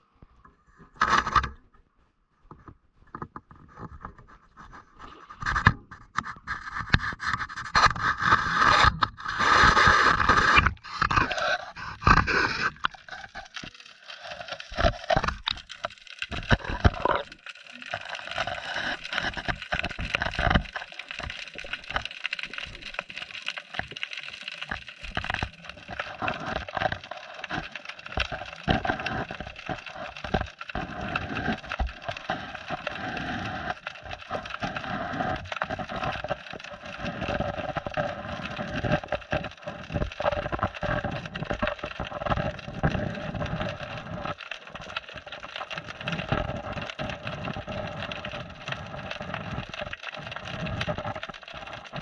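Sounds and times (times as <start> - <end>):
muffled underwater hiss: 16.4 - 44.1.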